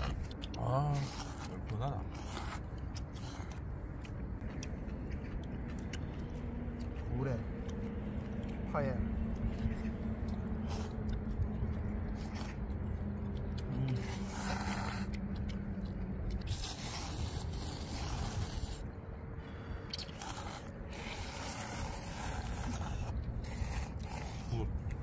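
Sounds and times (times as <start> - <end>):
people slurping noodles: 0.0 - 3.6, 10.6 - 18.9, 19.5 - 25.0.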